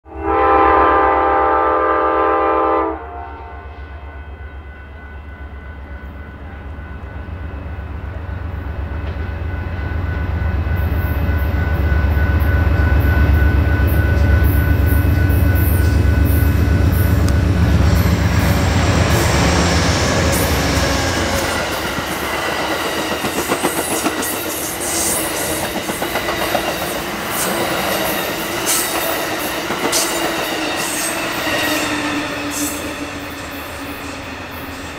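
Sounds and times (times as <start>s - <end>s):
train air horn: 0.0s - 5.5s, 29.9s - 34.2s
diesel locomotive engine drone: 0.1s - 34.9s
train wheels clicking on rails: 10.8s - 34.9s.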